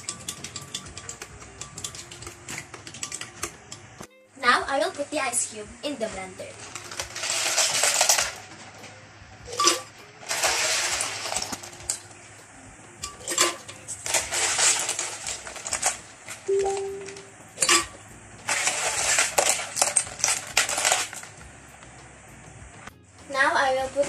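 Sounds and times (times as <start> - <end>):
spoon rattling through ice cubes: 6.5 - 8.4, 9.6 - 12.0, 13.0 - 17.9, 18.5 - 21.3
ice cubes clinking on glass: 6.6 - 8.4, 9.5 - 12.0, 13.0 - 21.3.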